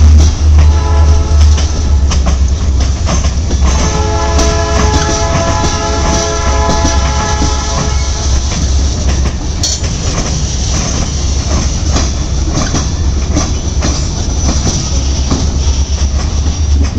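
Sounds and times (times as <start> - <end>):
freight train rumbling past: 0.0 - 16.9
wheels clacking over rail joints: 0.0 - 16.9.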